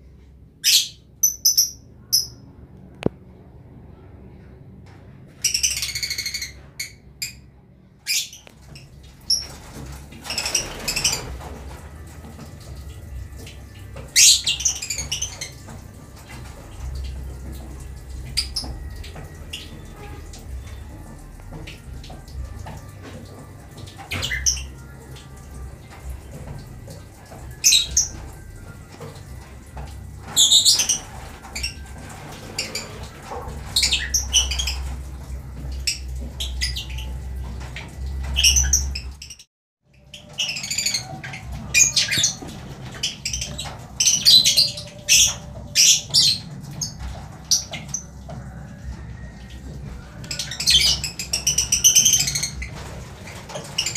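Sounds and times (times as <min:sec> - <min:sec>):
lovebirds chirping and squawking: 0:00.6 - 0:02.4, 0:05.3 - 0:07.4, 0:08.0 - 0:37.3, 0:38.2 - 0:48.2, 0:50.2 - 0:53.9.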